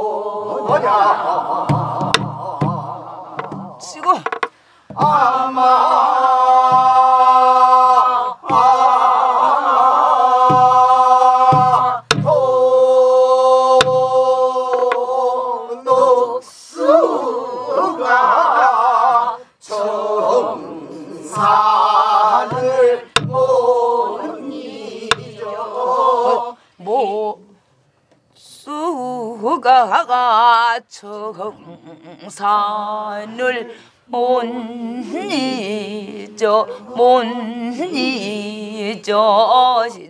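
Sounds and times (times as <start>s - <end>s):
group singing with vibrato: 0.0s - 27.6s, 28.4s - 40.0s
barrel drum thumps: 0.6s - 5.3s, 6.6s - 7.3s, 8.4s - 9.0s, 10.4s - 12.6s, 13.8s - 15.1s, 21.3s - 21.8s, 22.4s - 23.7s, 25.1s - 25.4s
drumstick clicks: 3.4s - 5.0s, 25.1s - 25.3s.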